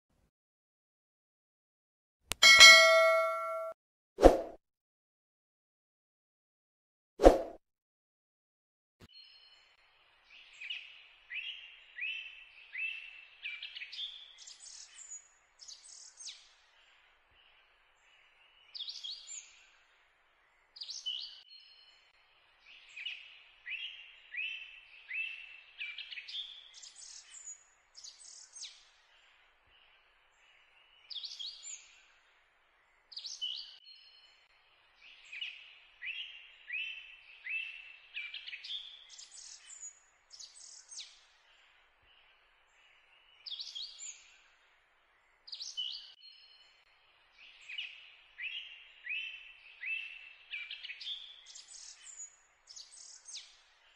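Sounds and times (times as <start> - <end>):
birdsong chirps and whistles: 10.3 - 16.6, 17.4 - 19.6, 22.6 - 29.0, 30.7 - 32.0, 35.0 - 41.3, 42.1 - 44.3, 45.5 - 46.8, 47.4 - 53.6.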